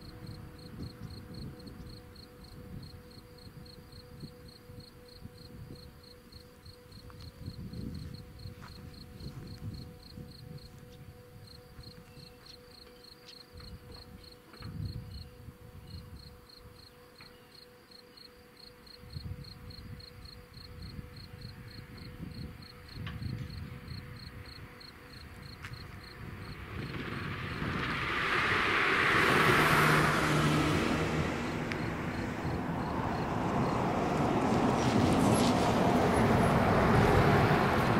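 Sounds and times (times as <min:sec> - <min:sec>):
faint steady tone: 0:00.0 - 0:29.0
vehicle driving past: 0:25.8 - 0:37.9.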